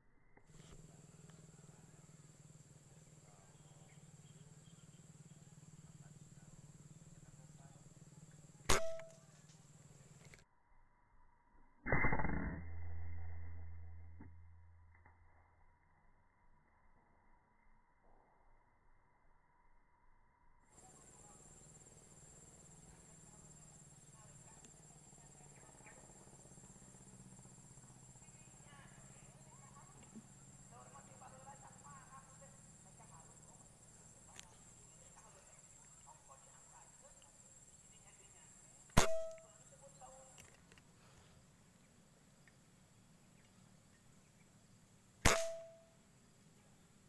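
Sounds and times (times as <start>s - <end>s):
faint chirps: 0.0s - 11.8s, 13.1s - 47.0s
low hum: 0.0s - 47.0s
air rifle shots: 8.7s - 9.2s, 39.0s - 39.4s, 45.2s - 45.8s.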